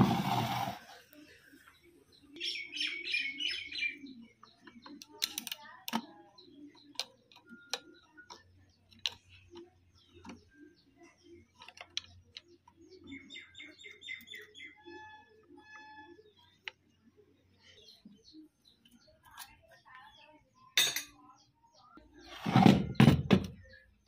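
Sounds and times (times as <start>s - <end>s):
bird chirping: 0.3s - 24.0s
metal tools tapping on sewing machine: 20.8s - 21.2s.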